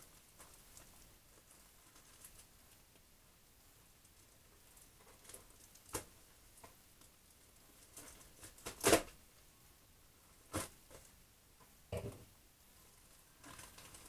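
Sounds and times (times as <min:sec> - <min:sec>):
plastic bag crinkling: 0:13.1 - 0:14.0.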